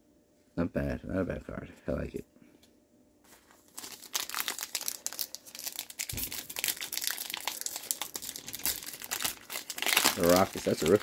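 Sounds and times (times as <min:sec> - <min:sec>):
plastic wrapper crinkling: 0:03.3 - 0:11.0.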